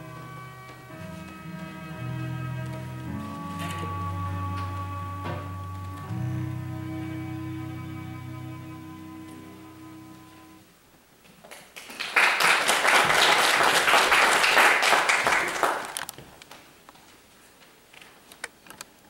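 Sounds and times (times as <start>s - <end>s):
congregation applauding: 11.5s - 16.1s.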